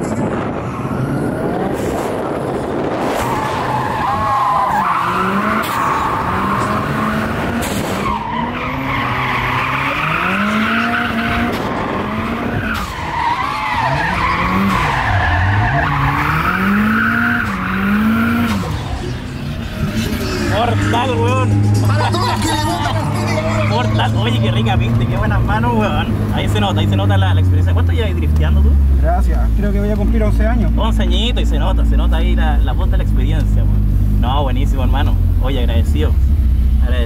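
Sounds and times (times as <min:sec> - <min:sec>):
car engine revving: 0:00.1 - 0:37.0.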